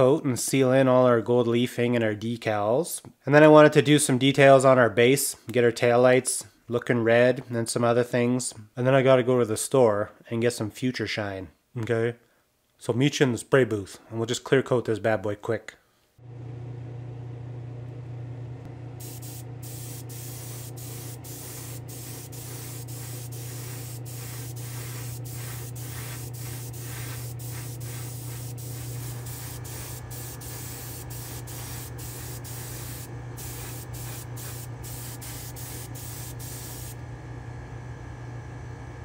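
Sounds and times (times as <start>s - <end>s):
steady low hum: 16.2s - 39.0s
spray gun hissing: 19.0s - 37.0s.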